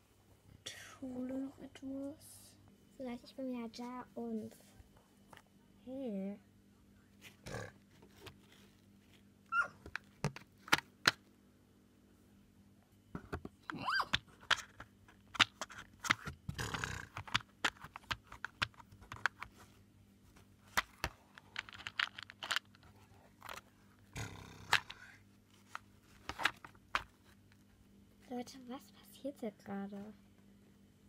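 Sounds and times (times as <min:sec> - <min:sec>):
plastic beads rattling in box: 0:21.4 - 0:22.8.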